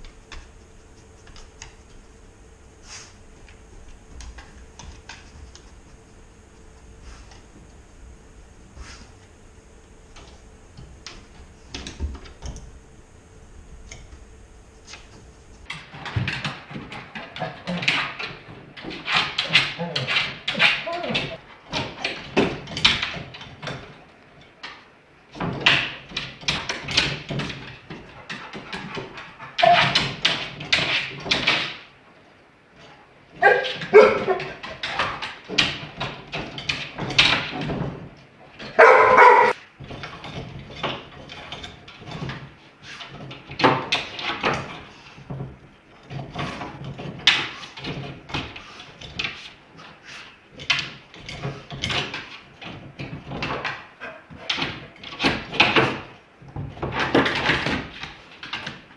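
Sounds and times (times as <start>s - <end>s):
dog vocal call: 33.4s - 34.6s, 38.8s - 39.6s.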